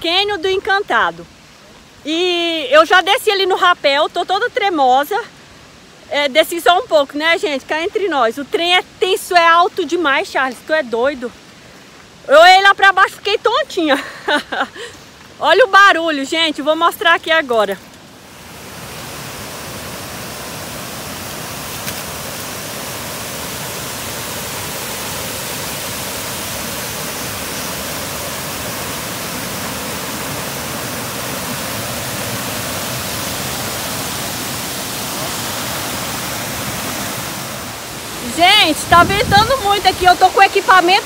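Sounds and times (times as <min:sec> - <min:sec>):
waterfall rushing: 0:14.7 - 0:41.0.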